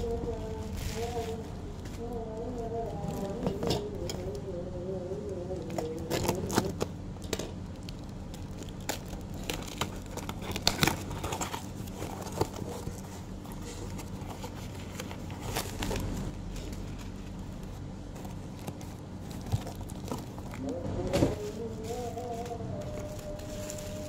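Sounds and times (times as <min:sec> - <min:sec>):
plastic wrapping crinkling: 0:00.0 - 0:04.4, 0:05.1 - 0:24.0
cardboard box being torn open: 0:08.8 - 0:12.7.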